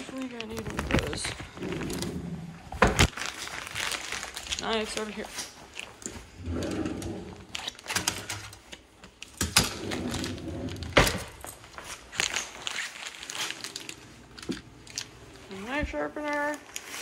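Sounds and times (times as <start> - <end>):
drawer of utensils rummaged: 0.0 - 8.6, 9.4 - 12.5.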